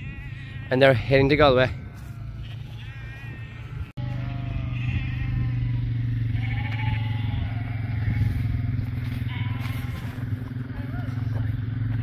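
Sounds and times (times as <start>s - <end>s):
sheep bleating: 0.0s - 11.6s
quad bike engine running: 4.0s - 12.0s.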